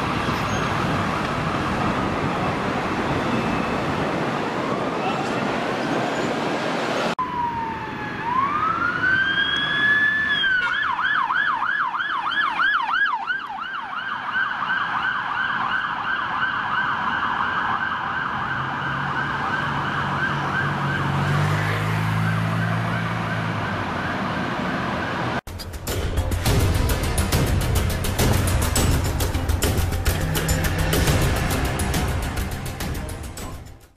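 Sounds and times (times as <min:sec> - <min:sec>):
police siren wailing and yelping: 0:07.2 - 0:21.3.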